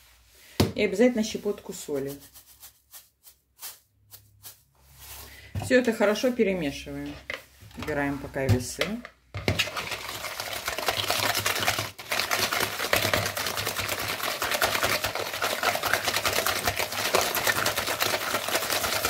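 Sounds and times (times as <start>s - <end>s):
whisk clicking against bowl: 9.6s - 19.0s.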